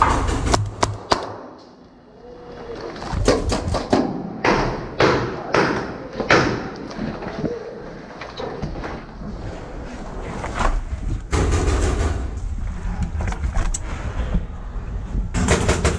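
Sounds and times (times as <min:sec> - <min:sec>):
sharp cracks: 0:00.0 - 0:01.6.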